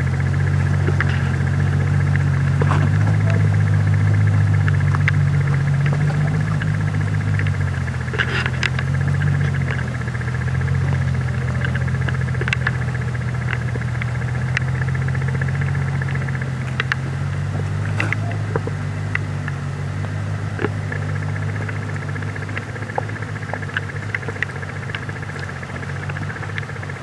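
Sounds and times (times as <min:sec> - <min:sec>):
car engine running low: 0:00.0 - 0:27.0.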